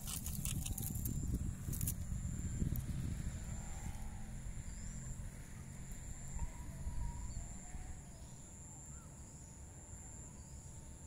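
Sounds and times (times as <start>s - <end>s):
wind rumble on microphone: 0.0s - 8.5s
faint bird chirps: 3.3s - 11.0s.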